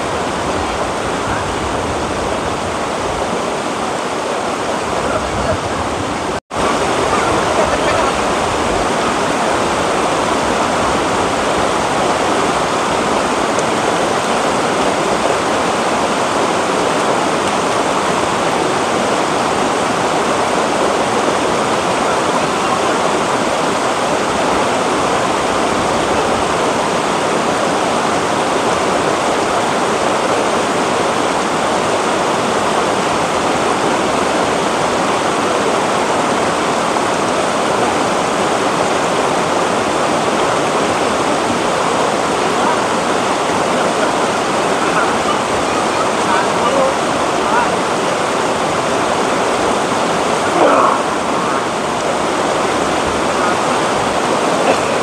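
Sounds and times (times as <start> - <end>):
river rushing over boulders: 0.0 - 55.0.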